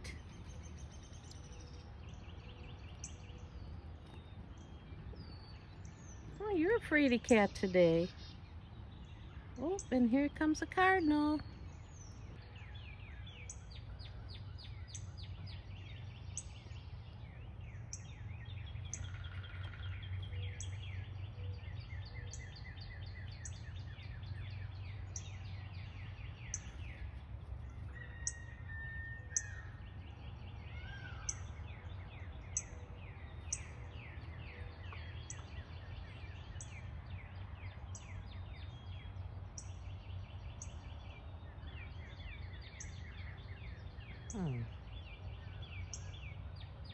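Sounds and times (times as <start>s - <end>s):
low steady background rumble: 0.0s - 46.9s
songbirds chirping and trilling: 0.0s - 46.9s.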